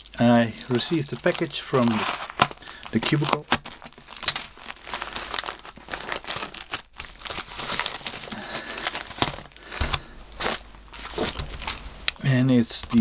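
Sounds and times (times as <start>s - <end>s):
package wrapping crinkling: 0.0s - 13.0s.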